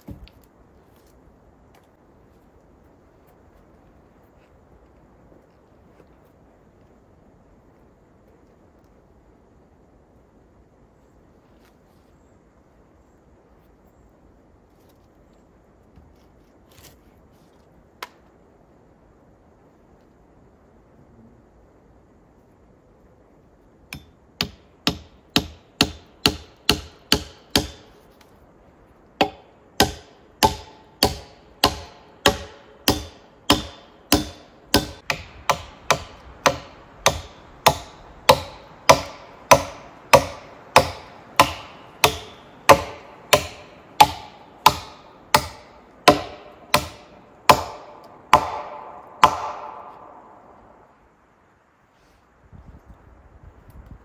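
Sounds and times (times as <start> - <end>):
hand tool striking wooden beam: 23.9 - 28.1, 29.2 - 50.2.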